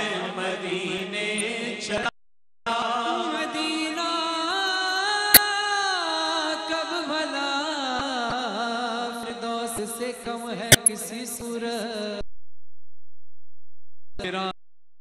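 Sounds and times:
man singing into microphone: 0.0 - 2.1, 2.7 - 12.2
sharp click: 10.7 - 11.0.

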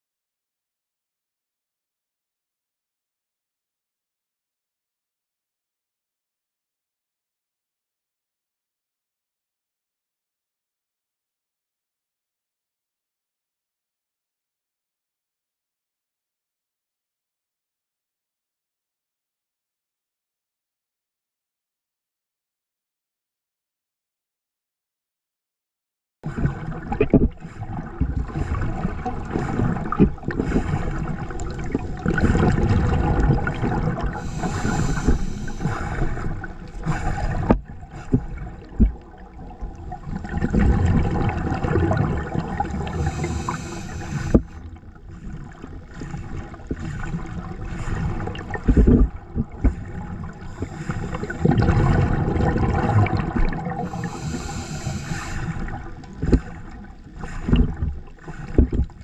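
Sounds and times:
underwater breathing bubbles: 26.2 - 59.0.

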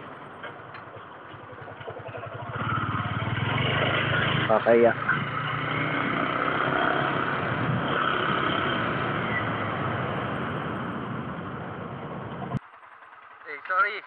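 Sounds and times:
motorcycle engine: 0.0 - 14.0
wind rush: 7.4 - 8.3.

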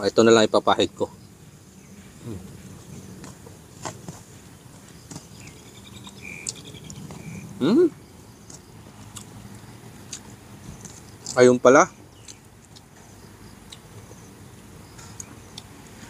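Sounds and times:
insect chirping: 0.0 - 16.0
man humming mm: 2.2 - 2.6, 7.6 - 8.0
mouth clicks eating: 5.0 - 11.4.

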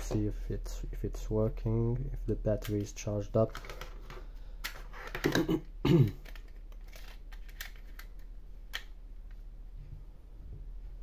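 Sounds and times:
plastic clicking and rattling: 2.6 - 5.5, 6.1 - 8.9.

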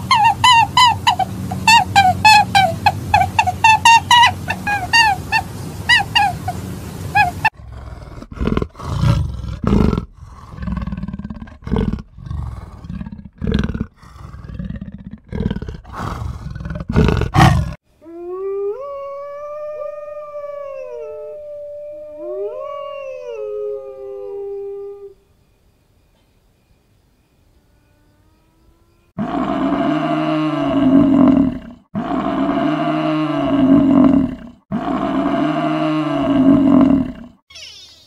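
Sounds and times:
dogs howling: 0.0 - 7.6, 17.4 - 25.2
cheetahs growling: 0.0 - 17.8
short falling chirping calls: 37.5 - 38.0.

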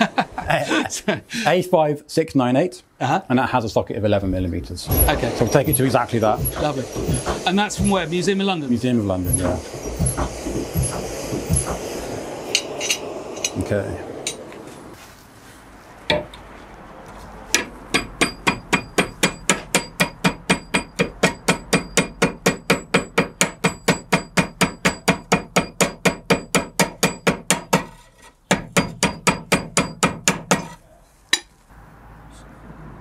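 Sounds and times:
hammer striking hot iron: 4.9 - 8.4, 9.2 - 14.6, 16.1 - 16.4, 17.5 - 31.5.

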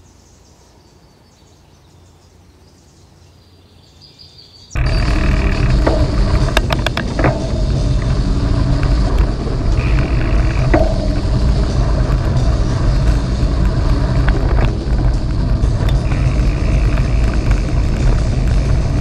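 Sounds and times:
bike clicks and rattles: 4.8 - 19.0
bike tyres rumbling on gravel: 4.8 - 19.0
wind on microphone: 4.8 - 19.0.

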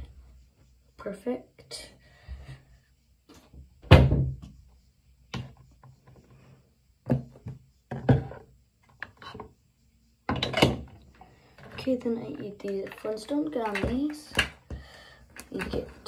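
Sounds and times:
wooden cabinet knocks: 3.9 - 4.5.

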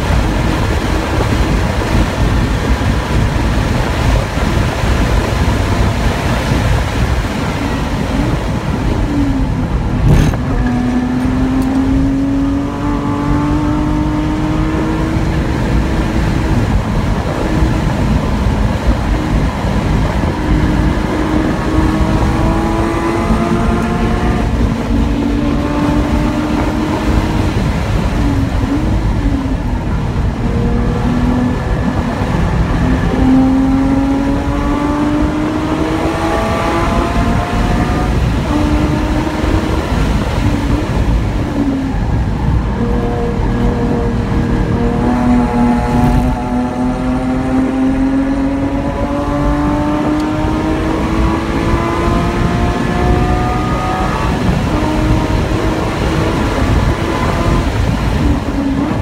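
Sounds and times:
car engine revving: 0.0 - 59.0
wind and road noise: 0.0 - 59.0
sharp knock: 10.0 - 10.8.

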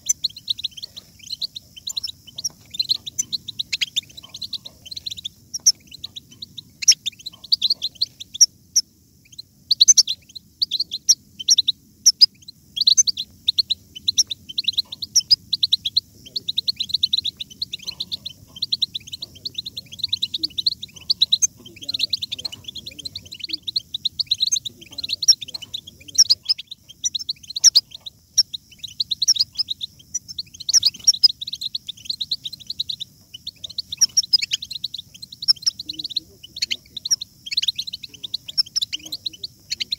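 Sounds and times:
goldfinch twittering song: 0.0 - 39.9.

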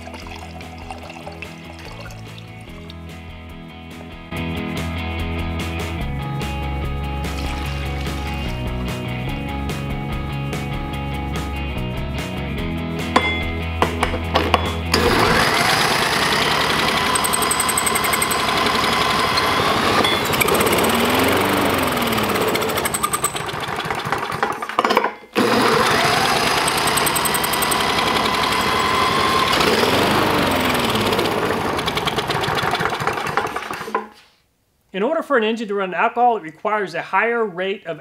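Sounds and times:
engine cranking: 14.4 - 24.8, 25.4 - 34.1
cordless drill whining: 14.9 - 24.4, 25.4 - 34.0.

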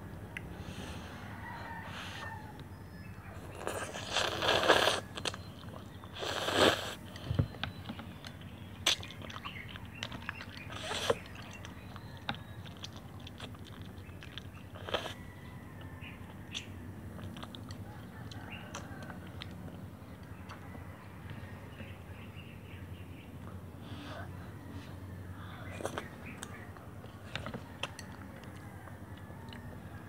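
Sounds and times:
chewing with small clicks: 3.4 - 21.9, 25.5 - 30.0
noodles slurped: 3.5 - 7.2, 8.8 - 15.2.

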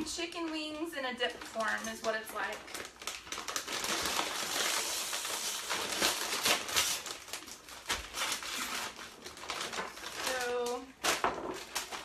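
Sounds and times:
plastic chip bag crinkling: 0.0 - 12.0.

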